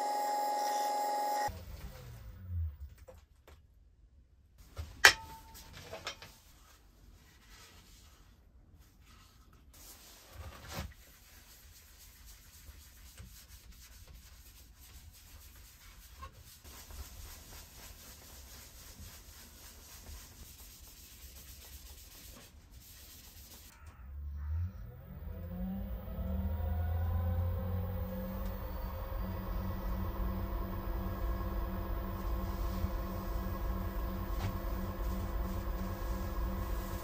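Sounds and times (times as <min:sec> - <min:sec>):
lathe motor whine: 0:00.0 - 0:01.5, 0:24.8 - 0:37.0
paper towel rubbing wood: 0:11.0 - 0:23.7.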